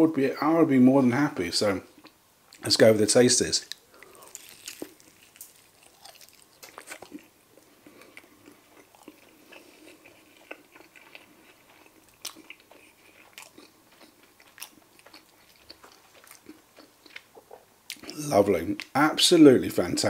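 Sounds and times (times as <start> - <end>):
crunching crispy chicken: 3.6 - 17.4
soft chewing: 3.6 - 18.9.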